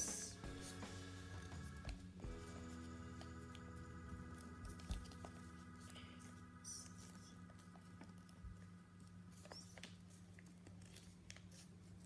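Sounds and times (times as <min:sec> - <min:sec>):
low steady hum: 0:00.0 - 0:12.0
paper crinkling and rustling: 0:04.3 - 0:12.0.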